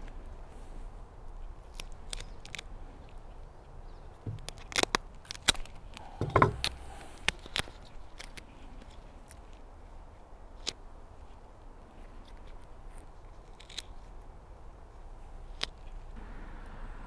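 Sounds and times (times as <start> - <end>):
duct tape peeling and crackling: 1.2 - 16.2
dull knock: 6.2 - 6.6.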